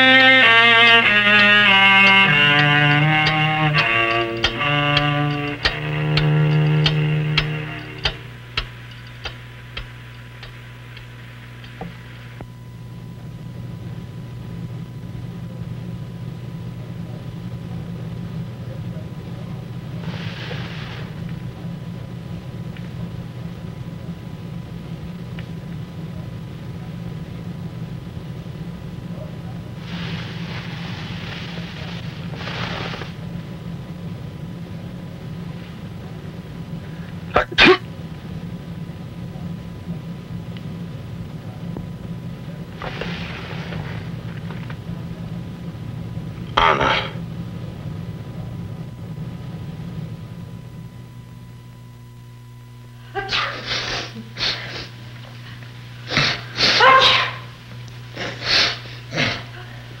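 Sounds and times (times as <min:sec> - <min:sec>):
steady low hum: 0:00.0 - 1:00.0
breathy hisses: 0:20.0 - 0:21.2, 0:53.3 - 0:56.9, 0:58.2 - 1:00.0
person sneezing: 0:37.3 - 0:37.9, 0:46.6 - 0:47.2, 0:53.2 - 0:55.0, 0:56.1 - 0:57.5, 0:58.2 - 0:59.7.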